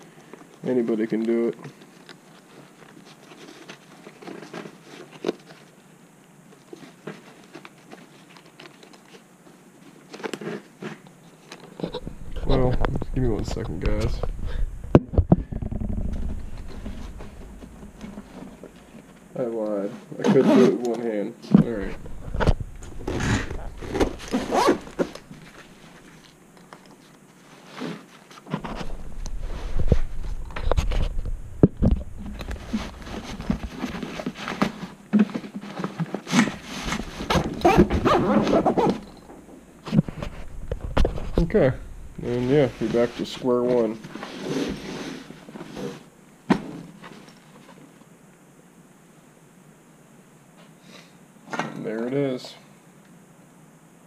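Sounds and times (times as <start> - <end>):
fabric rustling: 11.3 - 19.2, 21.6 - 39.2, 39.8 - 46.1.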